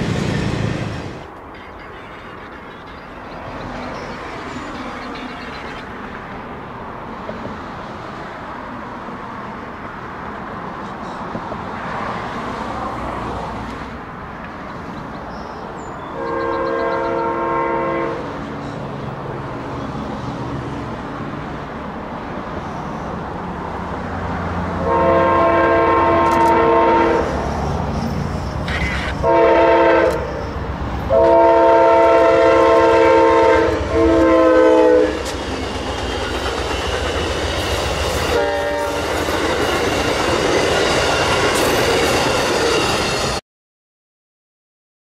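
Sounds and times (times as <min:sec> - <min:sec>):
low train rumble: 0:00.0 - 0:43.4
train air horn blasts: 0:16.2 - 0:18.3, 0:24.8 - 0:27.4, 0:28.8 - 0:30.5, 0:31.1 - 0:35.3, 0:38.1 - 0:39.2.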